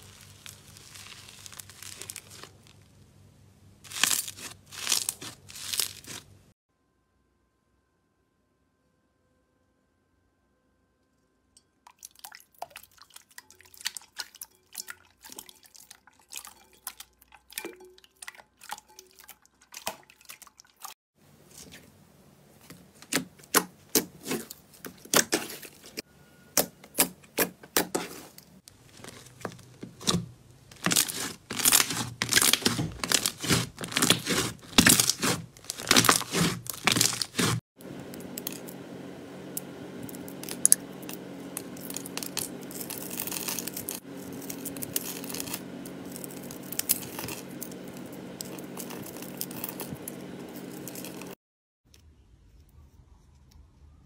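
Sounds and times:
slime squelching and popping: 0.0s - 2.8s, 29.0s - 37.6s.

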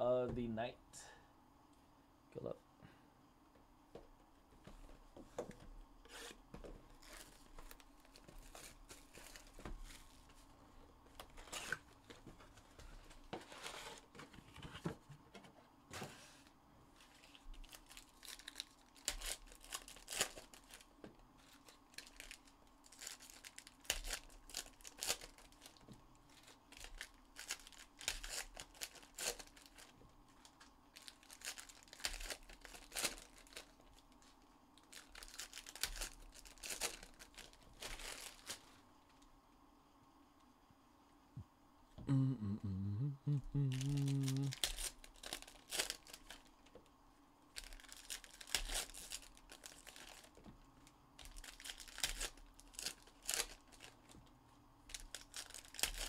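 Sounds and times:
foil wrappers tearing and crinkling: 6.9s - 10.2s, 17.0s - 34.1s, 34.8s - 38.8s, 43.7s - 46.6s, 47.5s - 50.4s, 51.2s - 54.2s, 54.9s - 56.0s.

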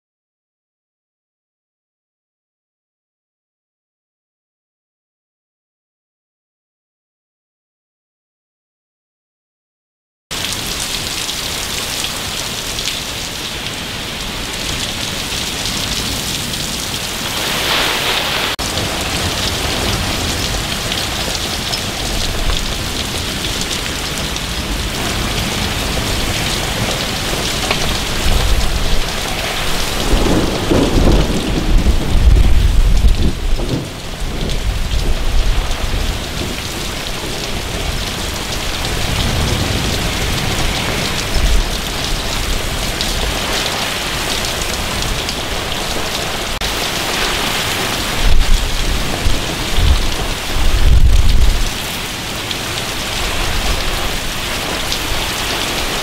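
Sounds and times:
heavy rain: 10.3s - 56.0s
strong wind: 10.4s - 56.0s
deep thunder rumble: 15.6s - 43.5s, 47.8s - 52.0s.

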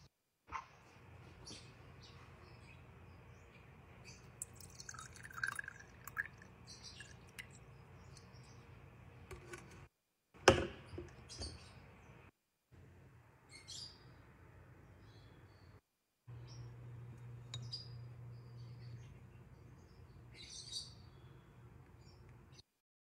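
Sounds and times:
liquid poured into glass: 4.4s - 7.6s.

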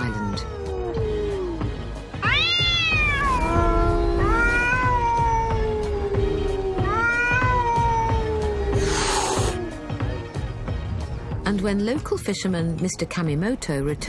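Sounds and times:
cat high wails: 2.2s - 9.9s.

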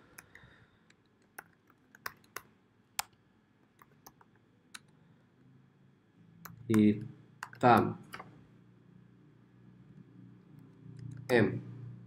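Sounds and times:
keyboard keystrokes: 6.5s - 8.3s.

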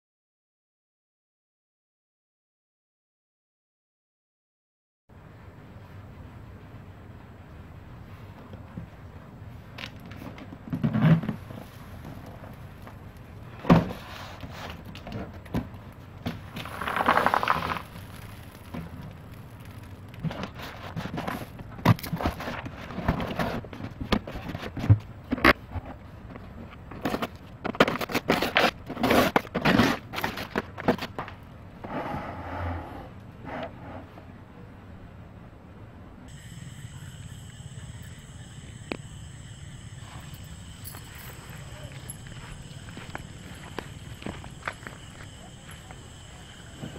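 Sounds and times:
cardboard box scraping on floor: 16.5s - 18.1s, 28.1s - 30.6s, 31.8s - 34.2s
paper wrapping crinkling and tearing: 16.5s - 21.6s.

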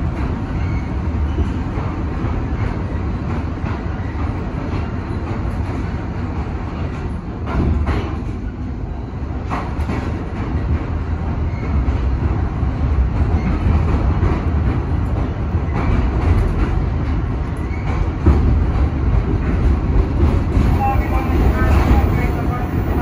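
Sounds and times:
train wheels rumbling on rail: 0.0s - 23.0s.

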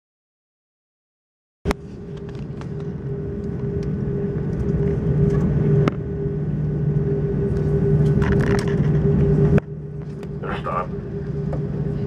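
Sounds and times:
aircraft cabin low hum: 1.7s - 12.0s
steady tone: 1.7s - 12.0s.

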